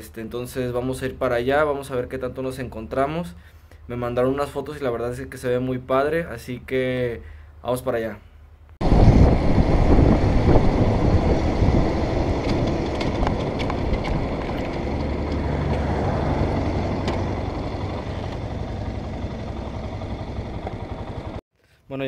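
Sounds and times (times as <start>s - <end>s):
wind rushing over microphone: 8.8s - 21.4s
motorcycle engine running: 8.9s - 21.4s.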